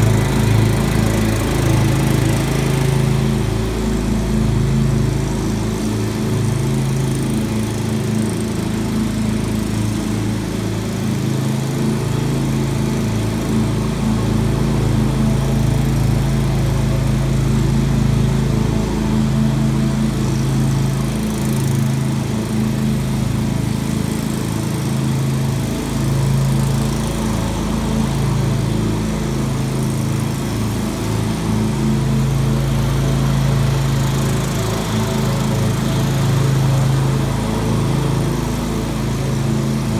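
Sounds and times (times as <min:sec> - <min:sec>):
lawn mower engine running: 0:00.0 - 0:39.9.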